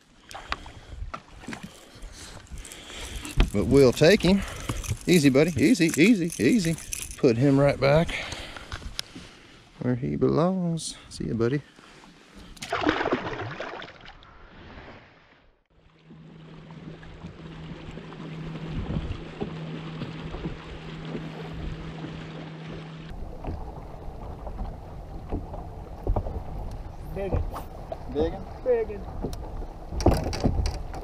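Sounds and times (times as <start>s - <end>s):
water noise: 0.0s - 9.8s, 11.9s - 31.0s
fish splashing into water: 12.6s - 14.2s
wind noise: 18.7s - 19.3s, 29.0s - 31.0s.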